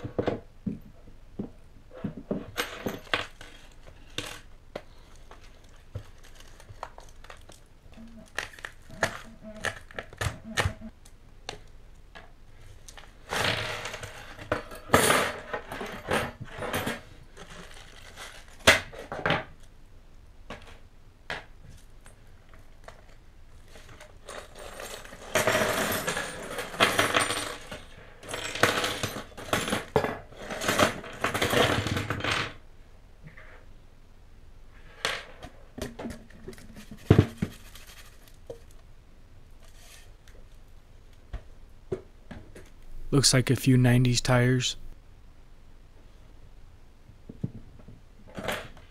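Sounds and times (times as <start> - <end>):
packing tape tearing: 5.4 - 10.8.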